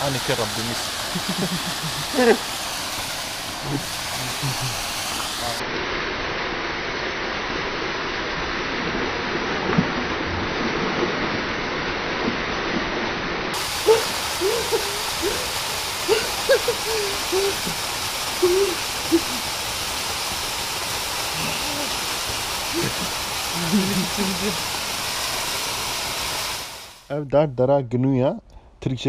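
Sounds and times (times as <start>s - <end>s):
waterfall rushing into pool: 0.0s - 27.1s
person hooting: 1.3s - 2.4s, 13.6s - 19.5s, 21.3s - 22.0s.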